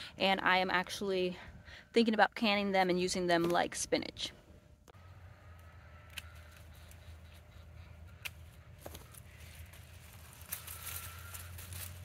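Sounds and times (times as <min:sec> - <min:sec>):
low steady hum: 0:00.0 - 0:12.0
rustling of vines and leaves: 0:08.1 - 0:12.0.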